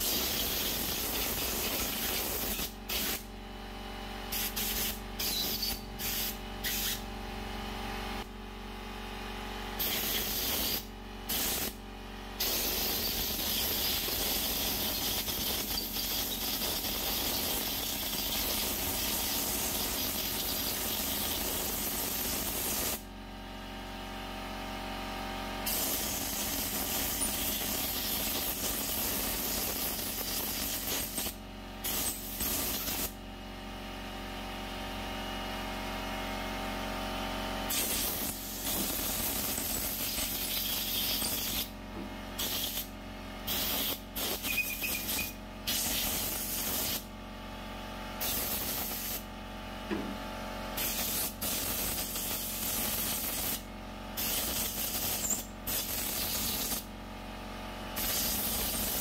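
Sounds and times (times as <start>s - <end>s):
compressed-air blow gun hissing: 0.0s - 3.2s, 4.3s - 7.0s, 9.8s - 11.8s, 12.4s - 23.0s, 25.7s - 33.1s, 37.7s - 41.7s, 42.4s - 42.9s, 43.5s - 47.0s, 48.2s - 49.2s, 50.8s - 53.6s, 54.2s - 56.8s, 58.0s - 59.0s.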